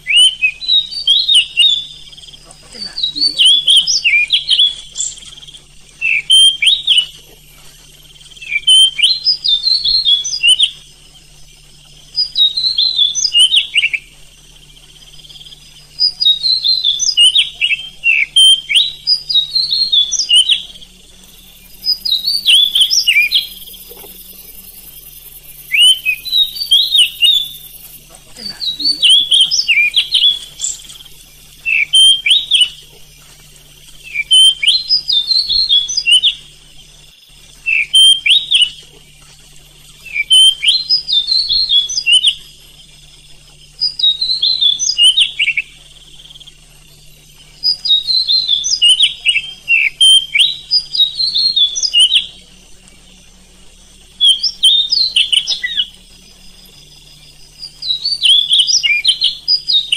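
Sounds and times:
bird singing whistled phrases: 0.0 - 7.4, 8.3 - 10.8, 12.1 - 14.2, 15.2 - 33.2, 34.0 - 36.6, 37.6 - 39.1, 39.9 - 42.8, 43.7 - 52.5, 54.1 - 56.0, 56.6 - 59.9.

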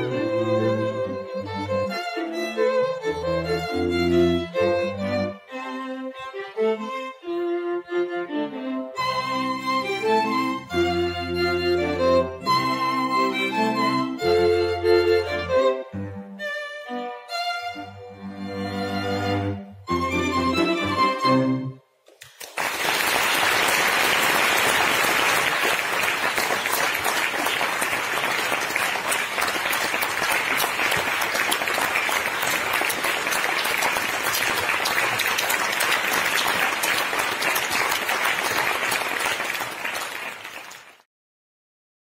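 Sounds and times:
string quartet chord: 0.0 - 21.8
audience applause: 22.2 - 41.1.

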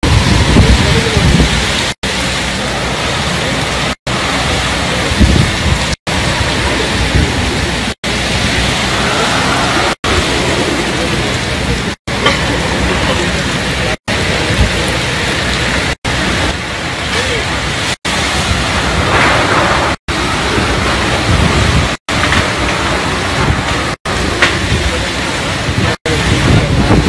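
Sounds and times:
heavy rain hissing: 0.0 - 27.0
wind surges: 0.0 - 27.0.

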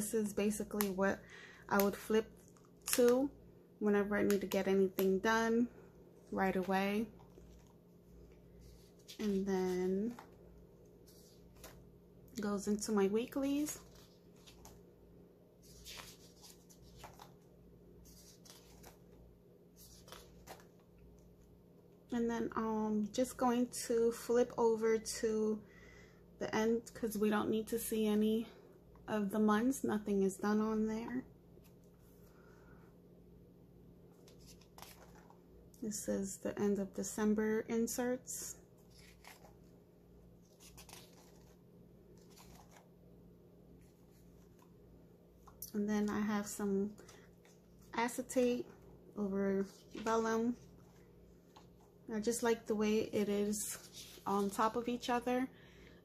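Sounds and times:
paper pages turning: 6.4 - 11.9, 13.6 - 14.9, 15.6 - 20.9, 34.1 - 35.4, 38.8 - 39.7, 40.4 - 42.9, 53.5 - 54.8.

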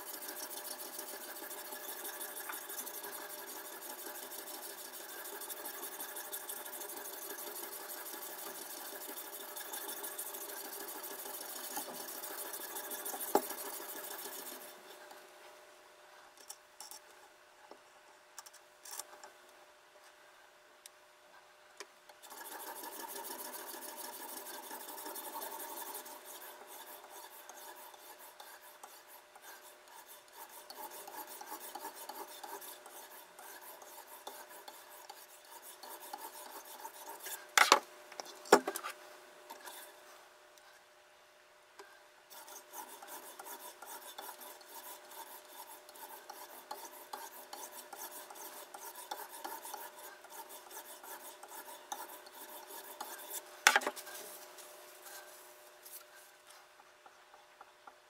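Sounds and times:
sharpening stone rasping on knife: 22.3 - 37.4.

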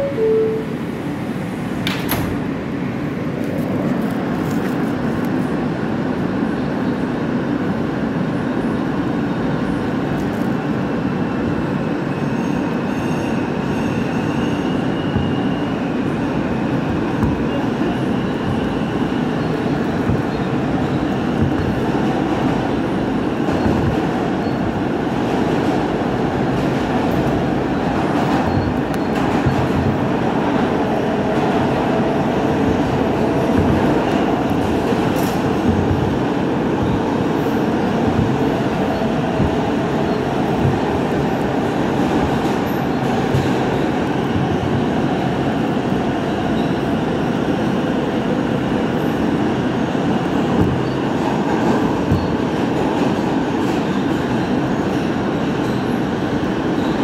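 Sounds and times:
two-note door chime: 0.0 - 0.8
thin high whine: 0.0 - 1.0
train wheel and track rumble: 0.0 - 57.0
train doors closing thud: 1.8 - 2.5, 16.4 - 24.9, 25.8 - 45.6, 50.2 - 54.2.

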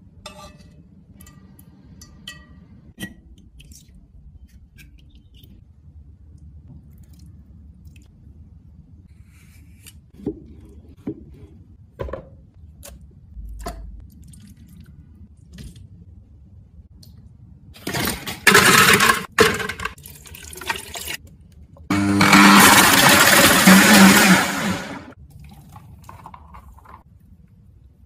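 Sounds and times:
ice and liquid poured into blender: 17.9 - 21.2, 22.3 - 26.8.

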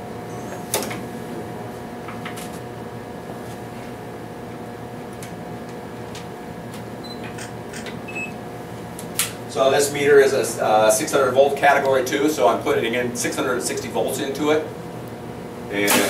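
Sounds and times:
lab equipment humming: 4.0 - 16.0.

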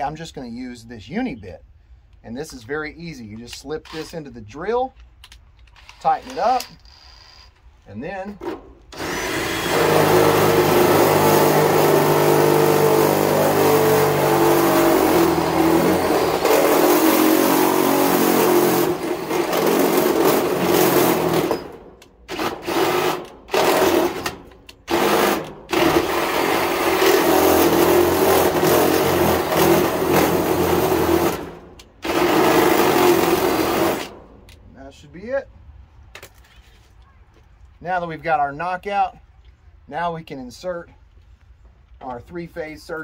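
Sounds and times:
drill grinding into sheet metal: 8.4 - 34.3.

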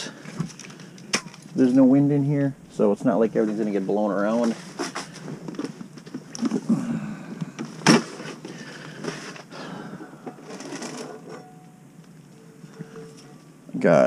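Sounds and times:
rustling: 0.1 - 6.7, 10.2 - 11.6
cooking gear clattering: 10.2 - 11.6.

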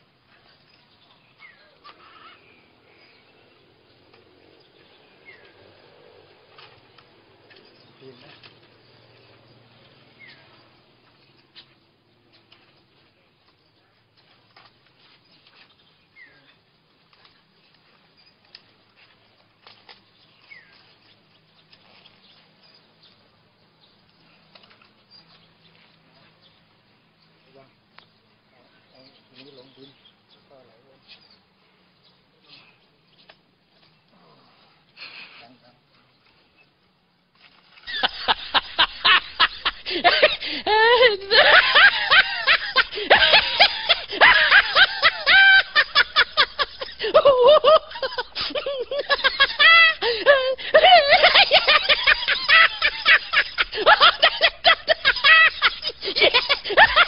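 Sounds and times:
high-pitched cackling laughter: 37.9 - 57.0
wavering cry: 37.9 - 57.0.

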